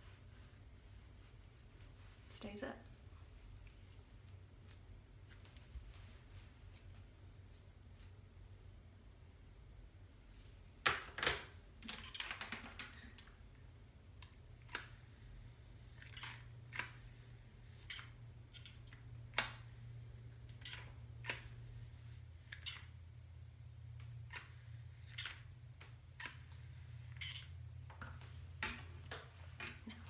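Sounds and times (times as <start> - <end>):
low steady hum: 0.0 - 10.8
comb scratching through hair: 3.4 - 8.5.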